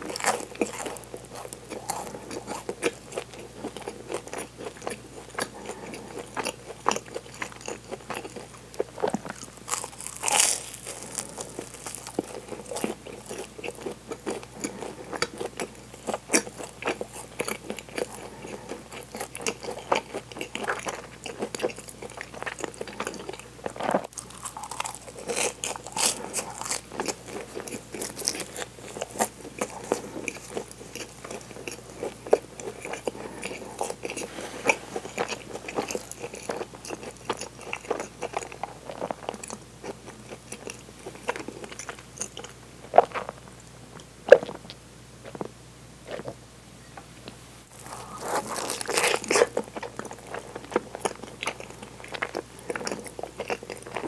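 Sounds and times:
chewing bread: 0.0s - 46.4s, 47.7s - 54.0s
crust crunching: 9.0s - 13.4s, 47.7s - 51.3s.

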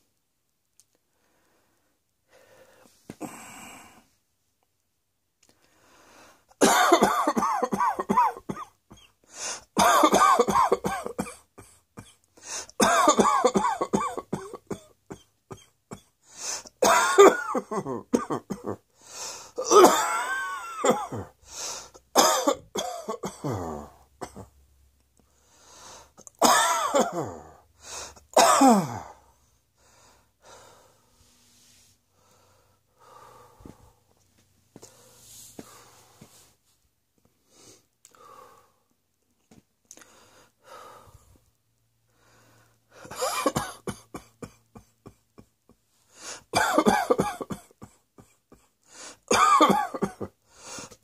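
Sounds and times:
person coughing hard: 6.6s - 9.2s, 9.8s - 16.1s, 16.8s - 18.8s, 19.6s - 21.4s, 22.1s - 24.5s, 26.4s - 27.6s, 28.3s - 29.2s, 43.0s - 45.5s, 46.4s - 48.7s, 49.3s - 50.4s.

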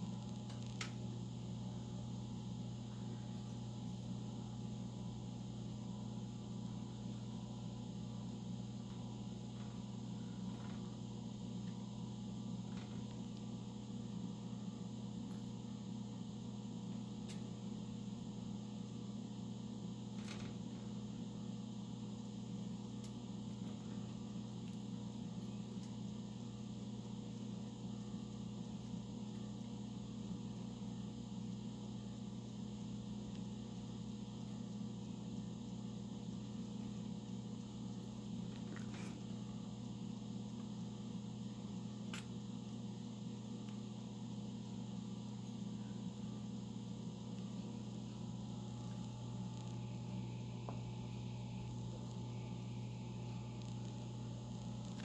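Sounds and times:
low appliance hum: 0.0s - 55.0s.

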